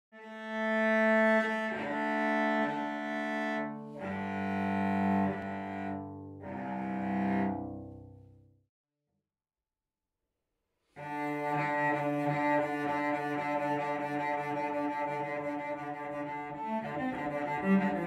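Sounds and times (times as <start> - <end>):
cello bowed notes: 0.2 - 8.4, 11.0 - 18.0.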